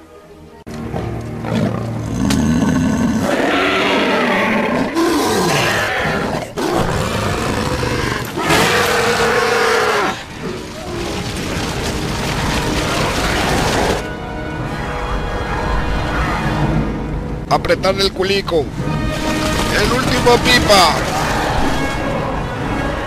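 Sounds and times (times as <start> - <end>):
creatures roaring and snarling: 1.5 - 14.0, 19.6 - 22.4.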